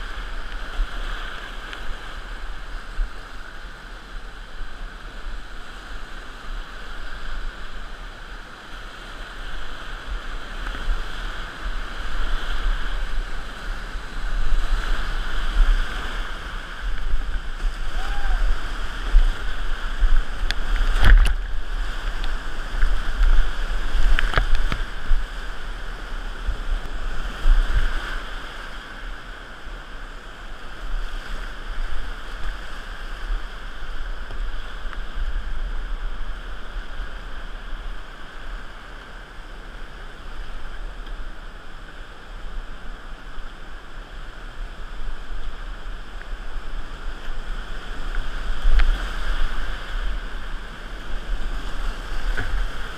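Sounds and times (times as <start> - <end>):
whitewater rapids rushing: 0.0 - 52.9.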